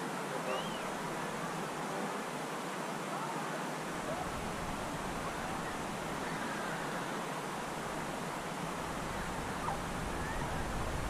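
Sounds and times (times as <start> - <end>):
crowd murmur: 0.2 - 2.2.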